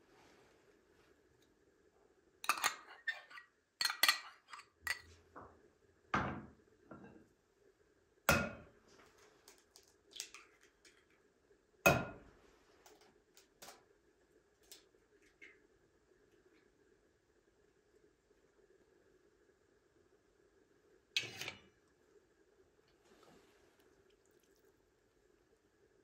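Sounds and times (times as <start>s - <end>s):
spoon clinking on ceramic bowls: 2.4s - 5.1s.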